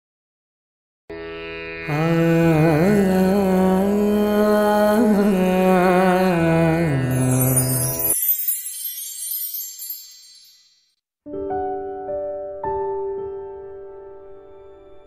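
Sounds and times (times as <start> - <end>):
ornamented melody over drone: 1.2 - 8.2
high sparkling shimmer: 6.4 - 11.0.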